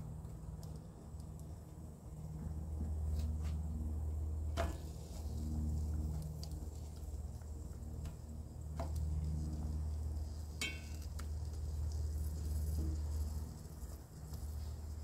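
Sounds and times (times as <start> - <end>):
faint sizzle of frying: 0.0 - 15.0
steady low hum: 0.0 - 15.0
metal tongs clinking on pan: 10.6 - 11.0.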